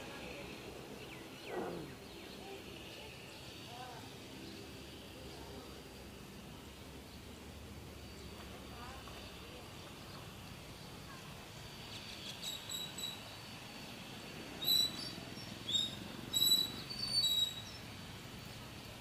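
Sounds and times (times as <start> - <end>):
small birds chirping: 0.1 - 5.8, 6.8 - 13.6, 14.6 - 18.6.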